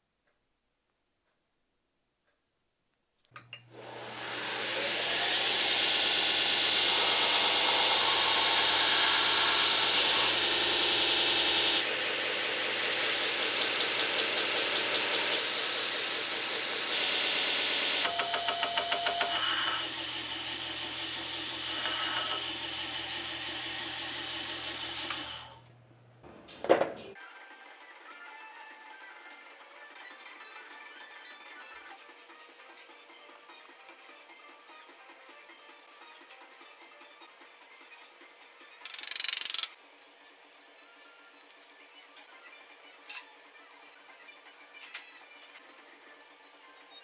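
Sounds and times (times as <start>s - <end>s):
belt grinder motor: 3.7s - 25.6s
wood grinding on abrasive belt: 3.8s - 25.6s.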